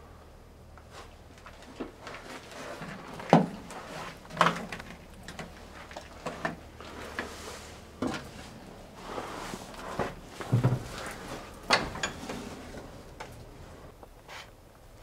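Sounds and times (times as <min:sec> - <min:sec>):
footsteps in cramped interior: 0:00.6 - 0:15.0
knocks and clunks: 0:10.0 - 0:13.6.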